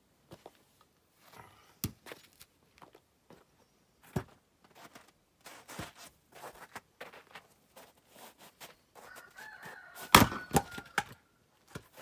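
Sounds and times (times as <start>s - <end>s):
footsteps crunching on wood chips: 2.0s - 10.0s
rustling and scraping: 4.0s - 10.1s.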